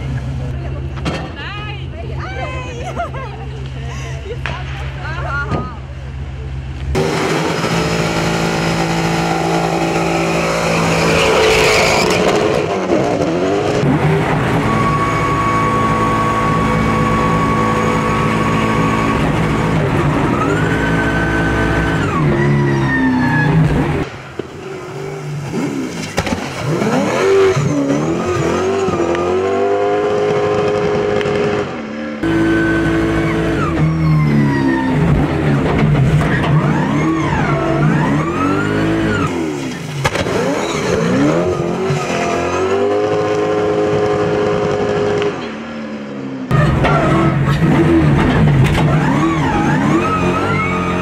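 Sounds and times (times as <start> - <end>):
car engine revving: 6.2 - 51.0
tyre squeal: 9.9 - 12.6, 14.4 - 23.8, 32.3 - 35.2, 36.2 - 43.0, 48.8 - 51.0.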